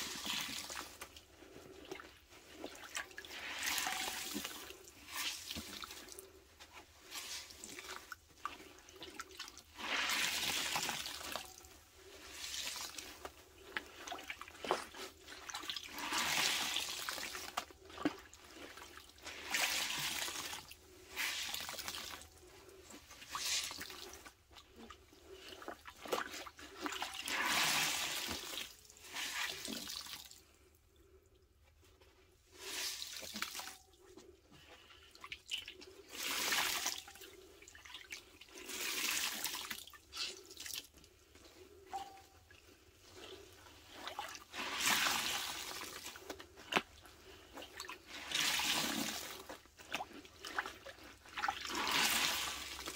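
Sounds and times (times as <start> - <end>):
wet sponge squelching: 0.0 - 30.0, 41.5 - 52.9.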